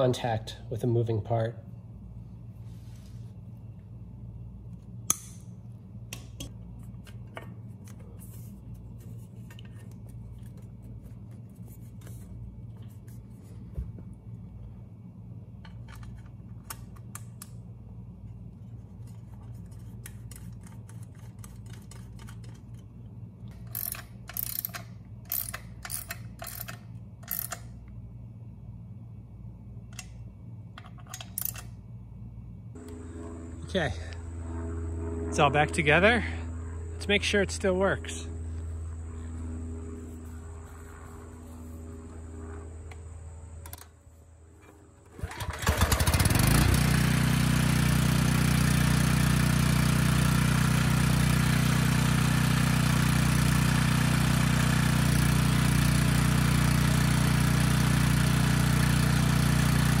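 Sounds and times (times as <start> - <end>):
steady low hum: 0.0 - 45.3
ratchet wrench clicking: 23.6 - 27.7, 31.1 - 31.7.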